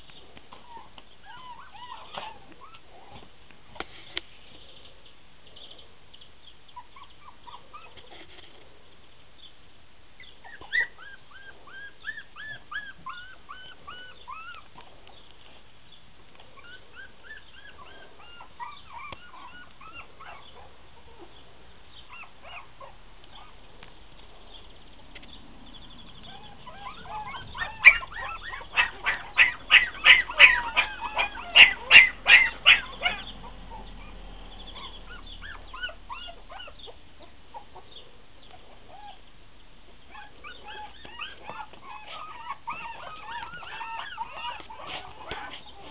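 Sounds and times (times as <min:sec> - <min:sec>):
puppies whimpering: 0:00.5 - 0:02.9, 0:06.8 - 0:08.4, 0:10.4 - 0:14.9, 0:16.6 - 0:21.4, 0:22.0 - 0:23.6, 0:25.8 - 0:38.0, 0:40.1 - 0:45.9
puppy rapid yapping: 0:26.3 - 0:34.1, 0:40.1 - 0:45.9.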